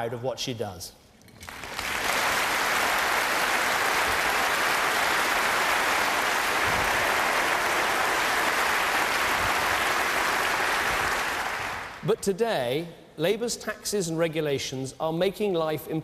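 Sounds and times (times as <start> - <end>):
audience applauding: 1.4 - 12.1.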